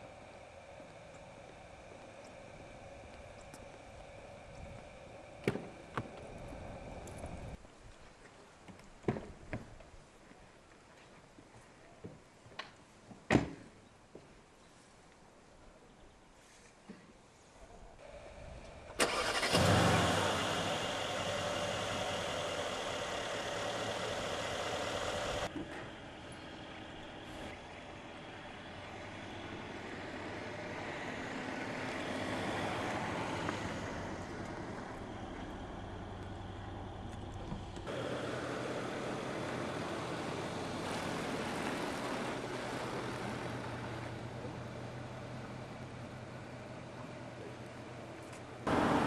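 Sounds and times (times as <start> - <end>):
car engine starting and idling: 18.0 - 49.0
ignition click: 19.0 - 19.7.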